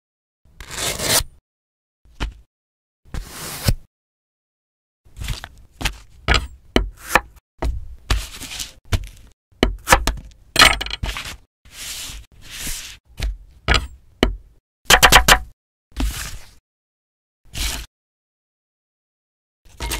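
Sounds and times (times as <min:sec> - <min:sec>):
knife scraping strokes: 0:00.6 - 0:01.4, 0:06.9 - 0:07.4, 0:11.1 - 0:13.0.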